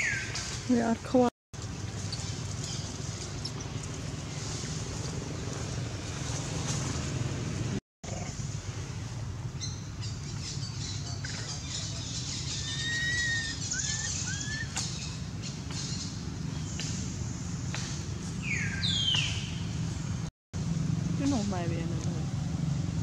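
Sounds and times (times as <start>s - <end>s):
birds chirping: 0.0s - 5.8s, 9.4s - 20.2s.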